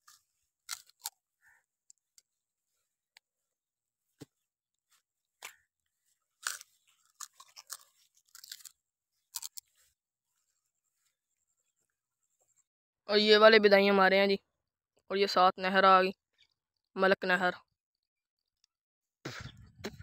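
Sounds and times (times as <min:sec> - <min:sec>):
sugarcane cracking in teeth: 0:00.0 - 0:01.2, 0:06.4 - 0:09.7
sugarcane crunching in chewing: 0:00.0 - 0:02.3, 0:04.9 - 0:10.0.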